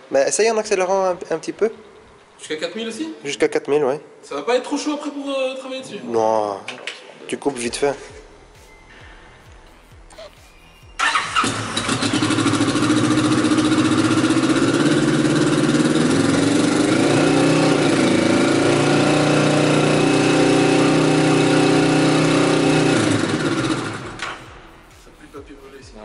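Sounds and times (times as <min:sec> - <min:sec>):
motorcycle engine revving: 0:11.0 - 0:24.7.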